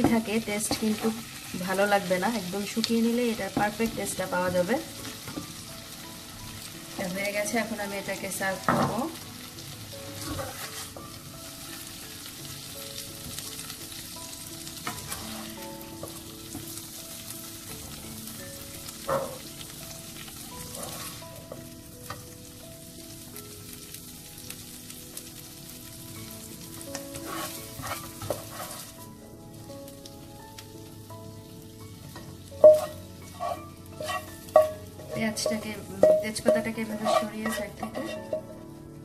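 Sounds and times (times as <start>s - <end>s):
food sizzling in a frying pan: 0.0s - 39.0s
spatula scraping a pan: 10.1s - 11.0s, 14.8s - 16.2s, 20.6s - 21.4s, 27.1s - 29.0s, 32.6s - 38.6s.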